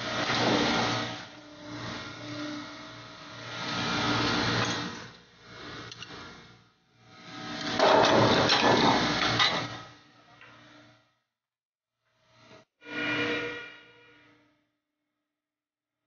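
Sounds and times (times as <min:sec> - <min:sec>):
rushing mechanical noise: 0:00.0 - 0:06.2
machinery clicks and clanks: 0:05.8 - 0:06.2, 0:07.5 - 0:09.8.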